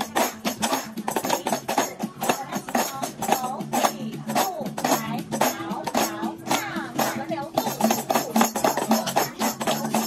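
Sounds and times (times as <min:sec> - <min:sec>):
recorded music: 0:00.0 - 0:10.0
tambourines struck with mallets: 0:00.0 - 0:10.0.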